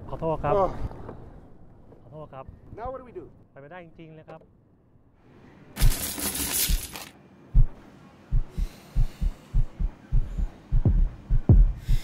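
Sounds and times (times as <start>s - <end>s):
low heartbeat-like double thumps: 7.6s - 12.0s.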